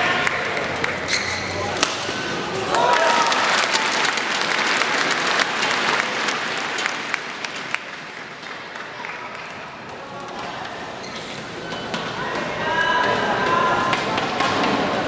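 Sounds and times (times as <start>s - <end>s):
crowd applauding: 2.6s - 9.7s.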